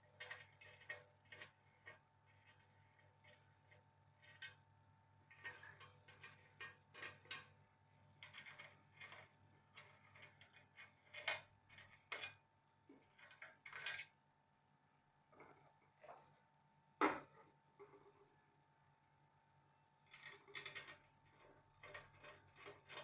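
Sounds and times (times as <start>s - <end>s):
metal parts clicking on metal table: 5.3s - 7.5s, 8.2s - 12.4s, 13.2s - 14.1s, 20.1s - 23.0s.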